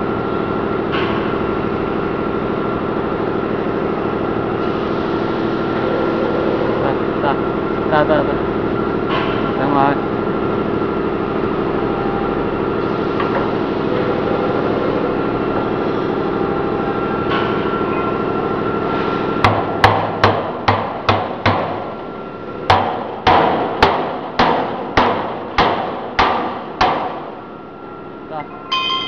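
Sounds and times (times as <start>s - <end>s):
machine humming: 0.0s - 29.0s
hammer striking steel: 22.7s - 27.3s.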